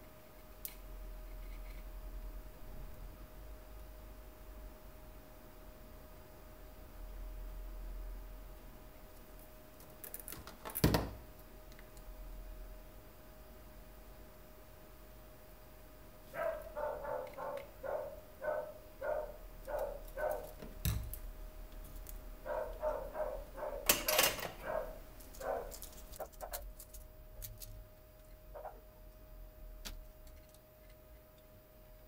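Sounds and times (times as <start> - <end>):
dog barking: 16.3 - 20.6, 22.4 - 23.9, 24.5 - 25.8
tools set down clicking: 23.9 - 24.6.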